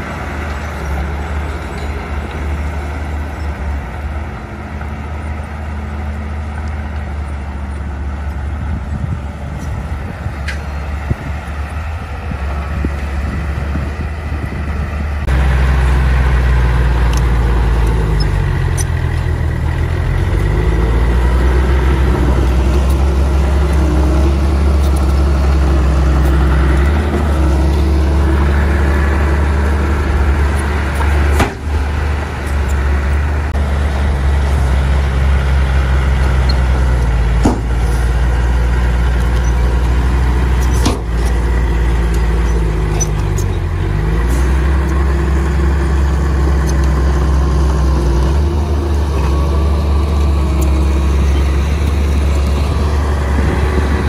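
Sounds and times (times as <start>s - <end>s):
diesel engine droning: 0.0s - 54.0s.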